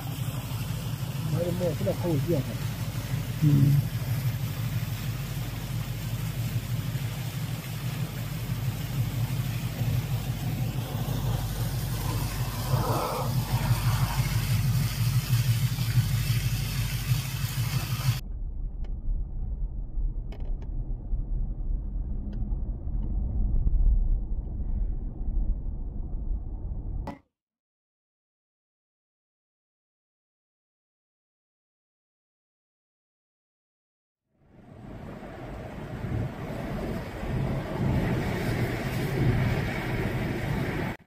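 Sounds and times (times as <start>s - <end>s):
waterfall splashing: 0.0s - 18.2s
car driving rumble from inside: 0.0s - 27.1s
low hum: 0.0s - 27.2s.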